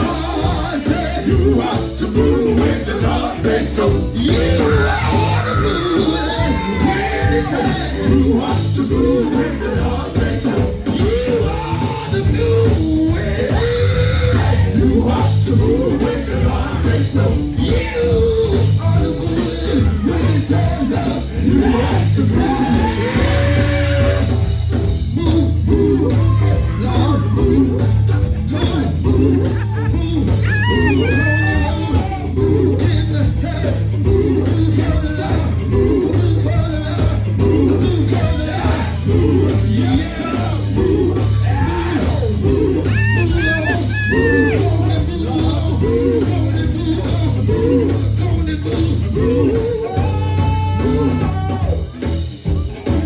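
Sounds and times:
electric guitar: 0.0s - 53.0s
gospel band playing: 0.0s - 53.0s
heavy steady bass: 0.0s - 53.0s
keyboard: 0.0s - 53.0s
male vocal group singing: 0.0s - 53.0s
singing with sliding pitch: 30.3s - 51.9s.

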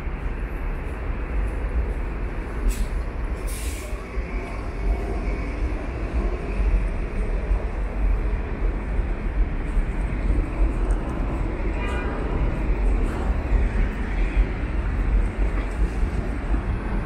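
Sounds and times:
city street traffic rumble: 0.0s - 17.0s
bus air brakes hissing: 2.6s - 4.1s.

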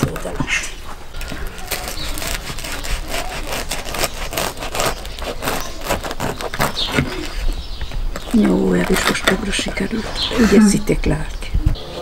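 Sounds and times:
knife sawing through bread crust: 1.6s - 7.6s.

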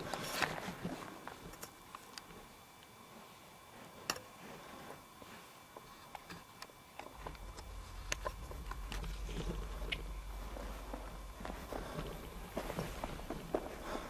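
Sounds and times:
faint high whine: 0.0s - 14.0s
footsteps: 7.2s - 14.0s
low rumble: 7.2s - 14.0s.

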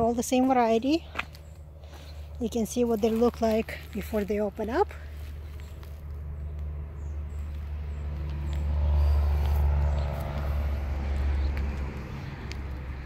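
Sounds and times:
car passing by: 6.0s - 13.0s.

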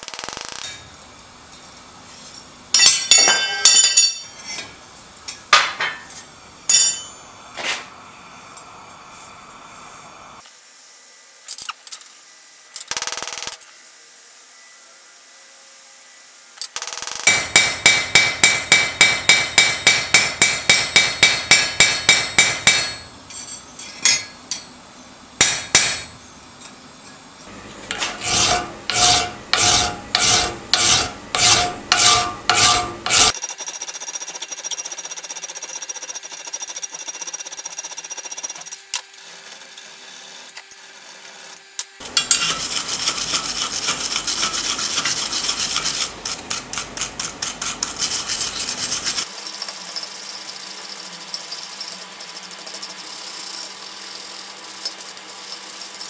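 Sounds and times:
file rasping on steel: 27.9s - 33.4s, 42.2s - 49.3s.

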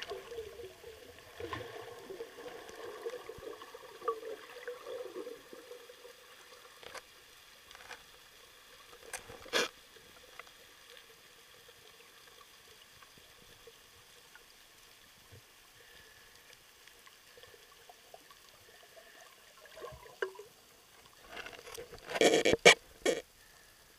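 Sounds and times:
water splashing: 0.0s - 7.0s.

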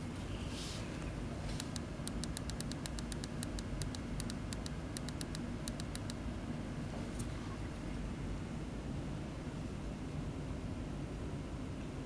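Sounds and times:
steady low hum: 0.0s - 12.0s
remote push buttons clicking: 1.6s - 6.2s.

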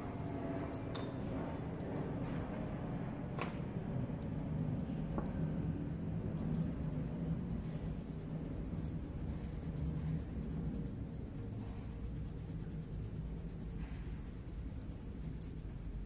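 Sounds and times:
pencil rubbing on paper: 6.6s - 16.0s.

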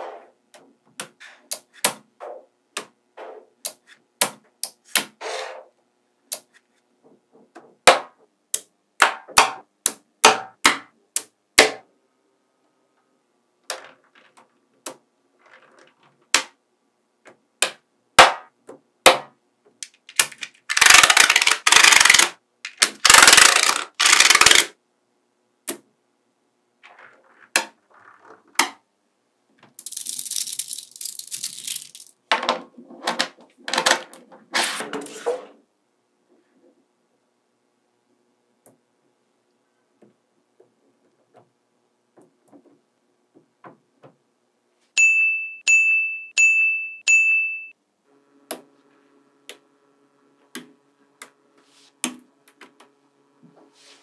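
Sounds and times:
magnetic balls clicking together: 19.8s - 24.7s, 29.7s - 32.2s
plastic card scraping: 20.0s - 24.8s, 29.8s - 32.2s.

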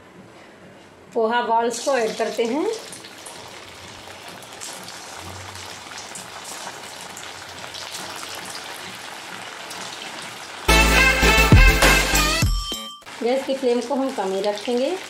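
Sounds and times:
food deep-frying in hot oil: 1.7s - 10.7s, 13.1s - 15.0s.

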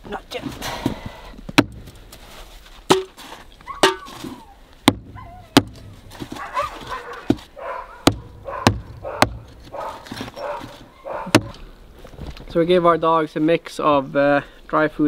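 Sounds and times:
dogs whining: 3.6s - 11.6s
hatchet chopping frozen meat: 7.3s - 9.5s.

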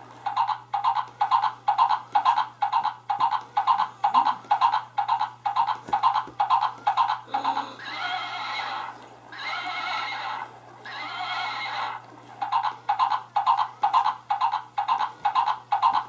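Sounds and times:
recorded galloping hoofbeats: 0.0s - 8.9s, 11.2s - 16.0s
recorded horse whinny: 7.4s - 12.0s.

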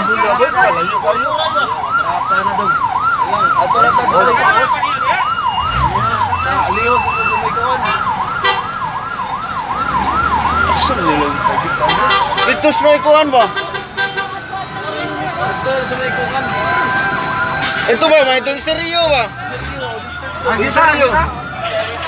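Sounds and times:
fire truck siren yelping: 0.0s - 22.0s.

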